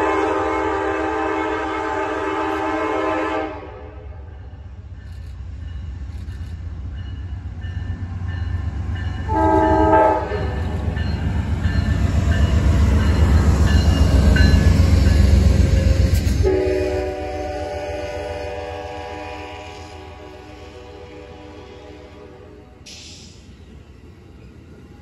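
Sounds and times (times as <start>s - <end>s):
train horn blast: 0.0s - 4.3s, 9.3s - 10.8s, 16.4s - 22.9s
locomotive engine and wheels rumbling: 0.0s - 25.0s.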